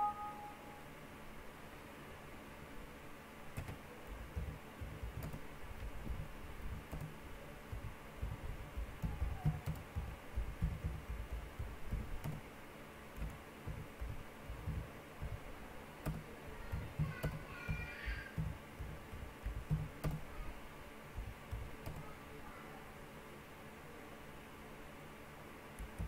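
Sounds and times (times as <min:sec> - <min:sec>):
high chirp: 0:00.0 - 0:00.8
computer keyboard typing: 0:03.6 - 0:12.4, 0:13.2 - 0:20.3, 0:21.2 - 0:22.1.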